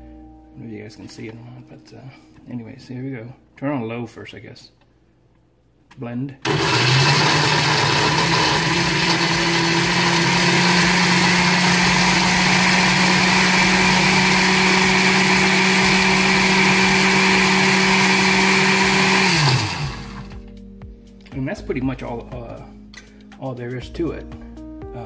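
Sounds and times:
blender motor whirring: 6.4s - 20.4s.

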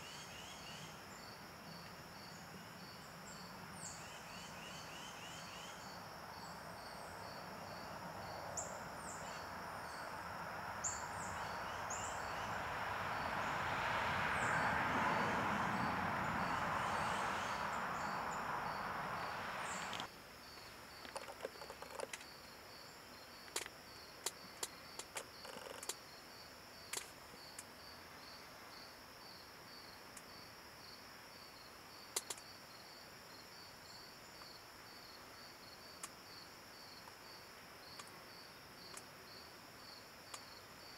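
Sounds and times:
insects chirping: 0.0s - 40.9s
broad rushing noise: 12.5s - 20.1s.

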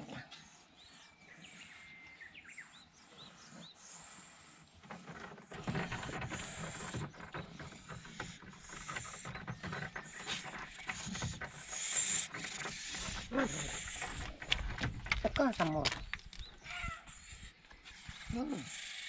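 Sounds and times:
cat scratching wooden boards: 4.7s - 16.8s.

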